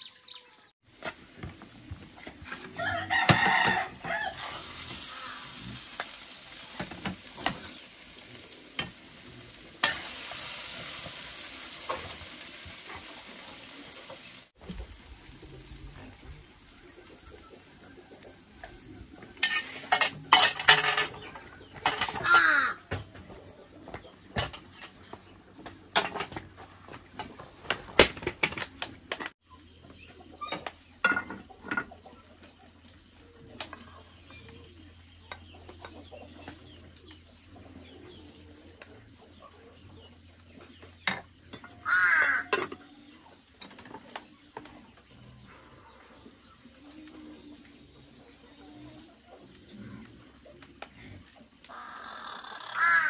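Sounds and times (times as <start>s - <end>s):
bird calls: 0.0s - 4.3s, 29.2s - 53.0s.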